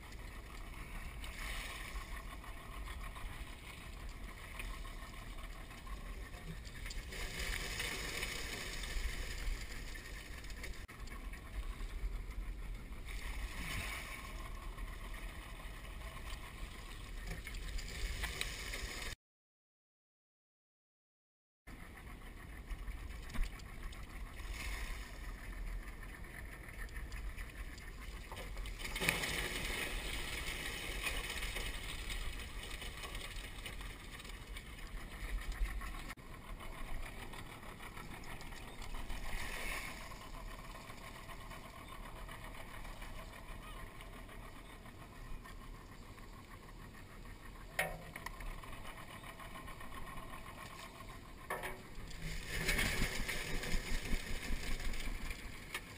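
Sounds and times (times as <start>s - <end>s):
low rumble: 0.0s - 19.2s
water splashing and running off: 28.4s - 34.0s.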